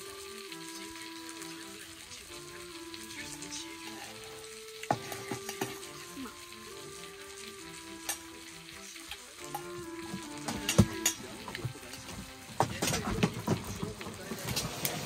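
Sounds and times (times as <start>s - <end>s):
slow melody of held notes: 0.0s - 14.2s
steady hiss: 0.0s - 15.0s.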